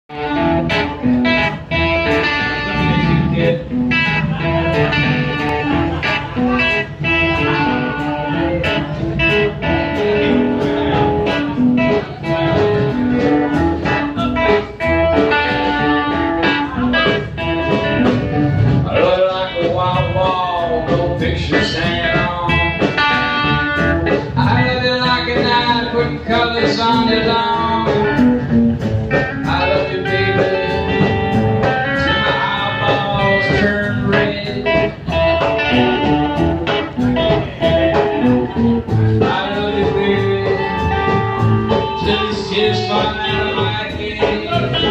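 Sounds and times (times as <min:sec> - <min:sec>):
bass guitar: 0:00.0 - 0:44.9
blues guitar lines: 0:00.1 - 0:44.9
steady drum beat: 0:00.2 - 0:44.9.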